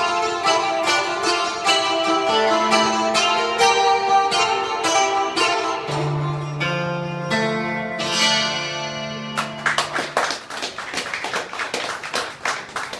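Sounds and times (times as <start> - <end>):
bouzoukis playing: 0.0 - 12.9
hand clapping and applause: 9.3 - 12.9.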